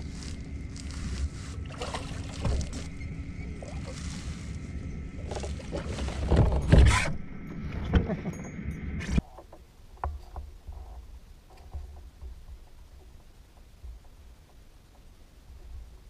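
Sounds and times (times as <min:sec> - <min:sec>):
water splashing: 0:00.0 - 0:06.7
handling noise: 0:00.0 - 0:08.1
wind rumbling on microphone: 0:00.0 - 0:09.3.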